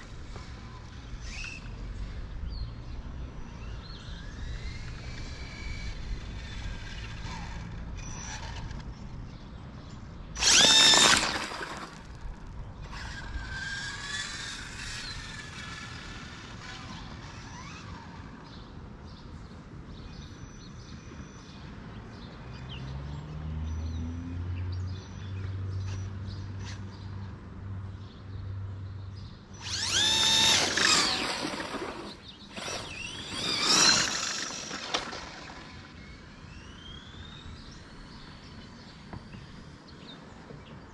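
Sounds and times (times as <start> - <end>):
electric motor whining: 10.4 - 12.2, 29.6 - 37.3.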